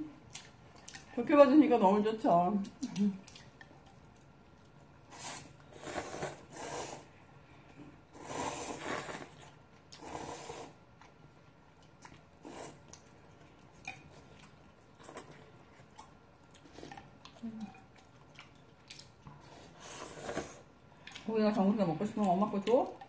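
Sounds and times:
quiet eating: 0.0 - 23.0
noodles being slurped: 5.0 - 7.2, 8.1 - 10.8, 16.6 - 21.3.

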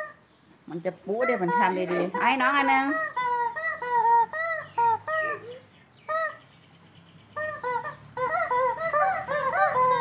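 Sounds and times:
squeaky rubber toy squawking: 0.0 - 0.2, 1.1 - 6.5, 7.4 - 10.0.

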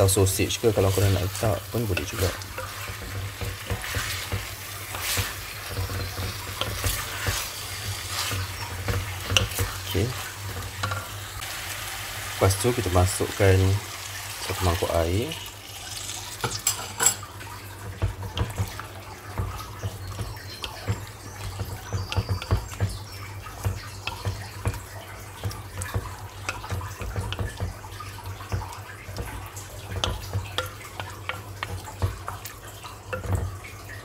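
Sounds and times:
utensil scraping a pot: 0.5 - 11.4.

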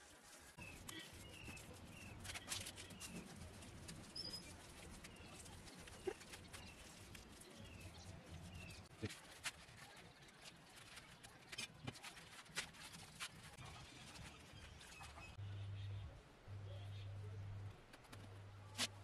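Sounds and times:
small birds chirping: 0.6 - 9.1.

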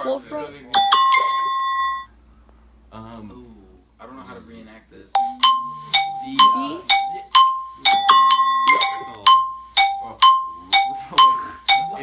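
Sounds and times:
two-note electronic chime: 0.8 - 2.1, 5.2 - 12.0
cluster of ringing tones: 0.8 - 2.2, 5.2 - 12.0.

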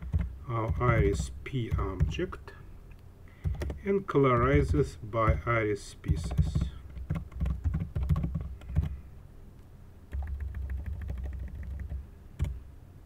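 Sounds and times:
keyboard typing: 0.0 - 2.3, 3.4 - 5.5, 6.1 - 9.0, 10.1 - 12.6.

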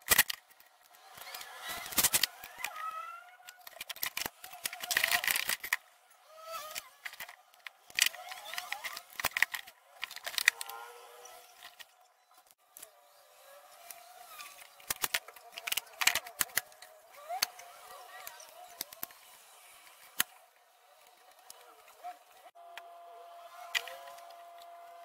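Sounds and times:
wooden parts clicking on workbench: 0.0 - 5.8, 6.6 - 10.9, 13.8 - 19.4.

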